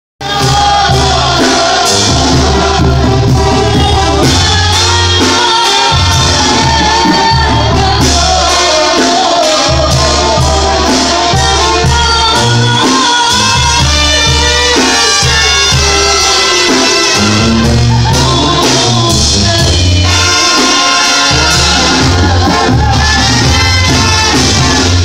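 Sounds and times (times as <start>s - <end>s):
sousaphone deep bass notes: 0.2s - 5.2s, 17.2s - 20.4s, 21.3s - 25.0s
woman singing into a microphone: 0.2s - 17.1s, 17.9s - 25.0s
brass band playing loudly: 0.2s - 25.0s.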